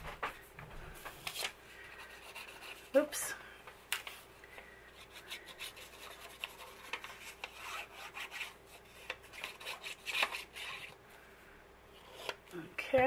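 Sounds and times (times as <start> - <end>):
paper rustling by hand: 0.0 - 3.0.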